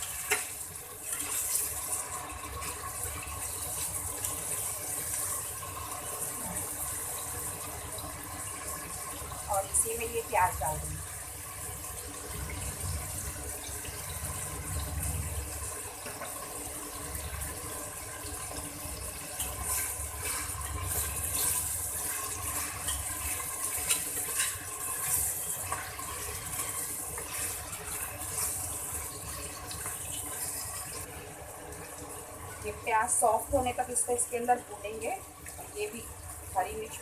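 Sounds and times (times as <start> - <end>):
meat and onions sizzling in oil: 0.0 - 37.0
spoon scraping metal pot: 22.5 - 27.6.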